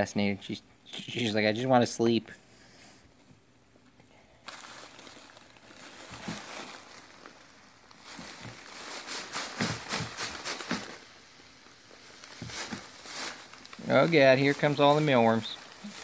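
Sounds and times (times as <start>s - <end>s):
fabric sack rustling: 4.4s - 16.0s.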